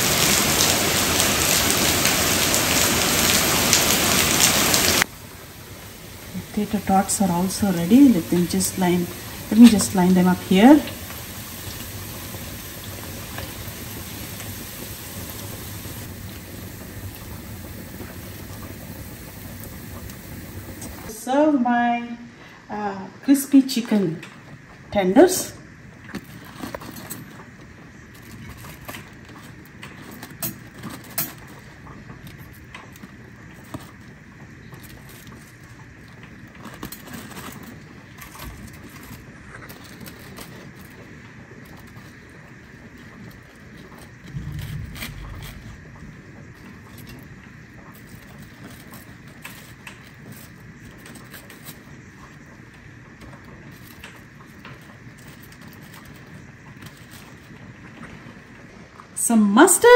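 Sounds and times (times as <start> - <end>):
hot oil sizzling and crackling: 0.0 - 21.1
rain hissing: 0.0 - 21.2, 27.2 - 59.9
fried chicken and paper rustling: 5.8 - 21.1, 26.1 - 58.6.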